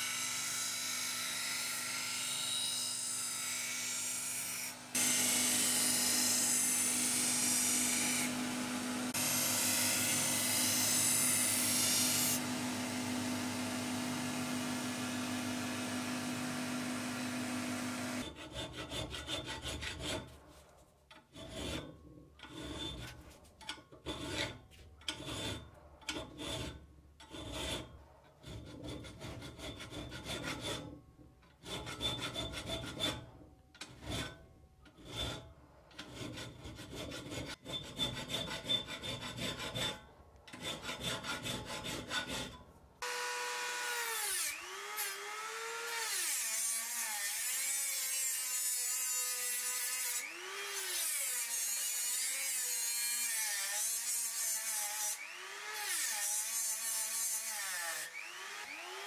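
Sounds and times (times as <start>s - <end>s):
hand file rasping on steel: 18.2s - 42.8s, 43.9s - 59.0s.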